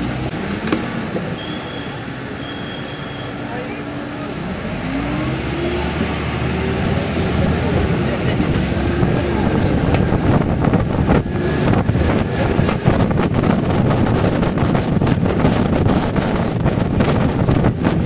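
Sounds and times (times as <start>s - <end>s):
moving vehicle rumble: 0.0s - 18.0s
road traffic: 0.0s - 18.0s
wind buffeting microphone: 4.8s - 18.0s.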